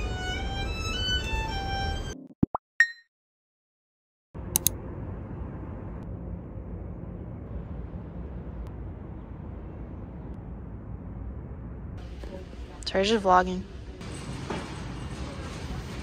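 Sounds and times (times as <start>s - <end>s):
low background rumble: 4.4s - 14.0s
sharp clicks: 4.5s - 4.8s.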